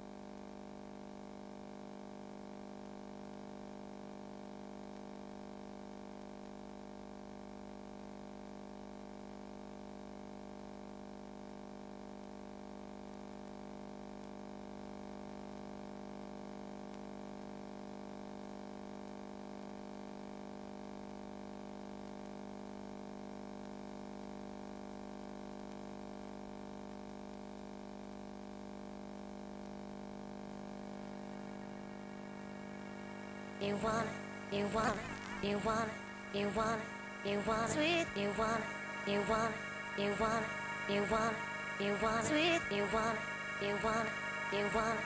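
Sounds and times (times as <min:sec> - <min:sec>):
electronic drone of low tones: 0:30.9 - 0:45.0
faint tape hiss: 0:31.0 - 0:45.0.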